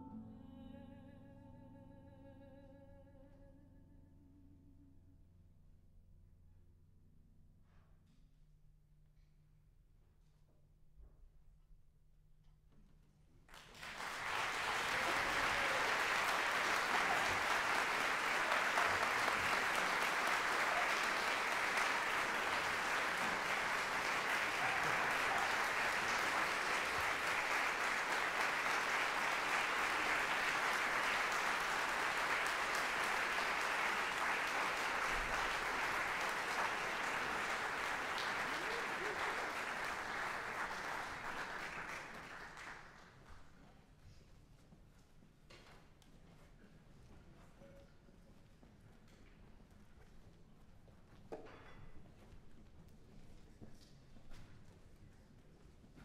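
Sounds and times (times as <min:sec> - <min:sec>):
audience applauding: 0:13.5 - 0:43.3.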